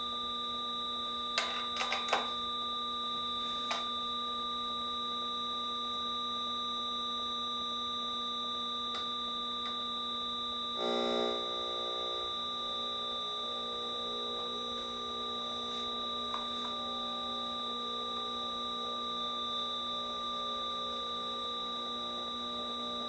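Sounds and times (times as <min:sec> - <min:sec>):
buzzy chord: 0:10.8 - 0:19.0
steady electronic tones: 0:10.8 - 0:19.0.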